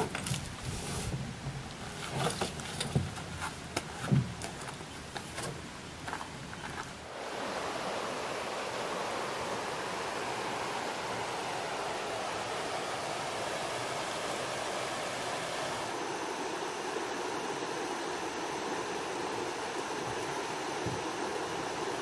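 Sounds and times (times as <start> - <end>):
canoe knocks and thumps: 2.2 - 6.2
river rapids rushing: 7.0 - 22.0.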